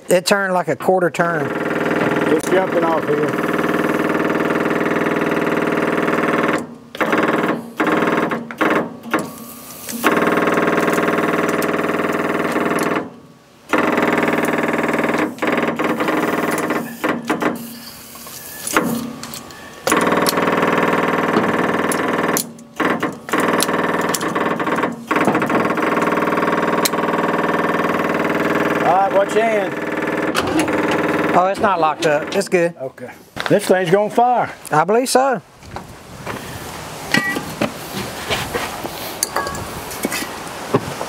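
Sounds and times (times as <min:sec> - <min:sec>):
engine idling: 0:01.4 - 0:08.2, 0:18.7 - 0:32.4
sharp clicks and knocks: 0:06.1 - 0:28.9.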